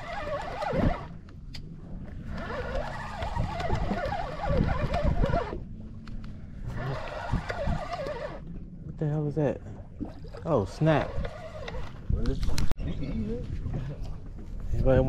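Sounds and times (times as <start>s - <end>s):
fishing reel gears whirring: 0.0s - 1.3s, 2.0s - 5.7s, 6.6s - 8.5s, 10.6s - 12.1s.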